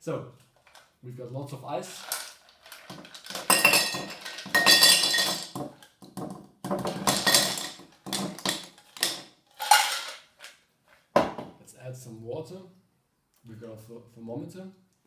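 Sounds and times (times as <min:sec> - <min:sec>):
ice cubes clattering into glass: 0:01.9 - 0:05.7, 0:06.8 - 0:10.2.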